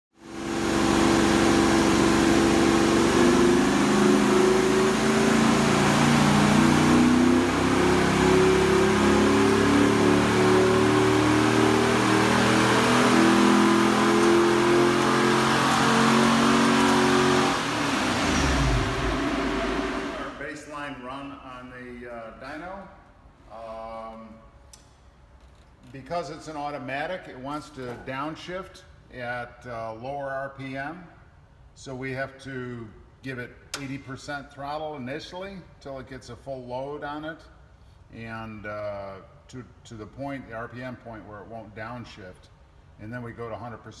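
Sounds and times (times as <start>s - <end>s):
car engine revving under load: 0.2s - 20.5s.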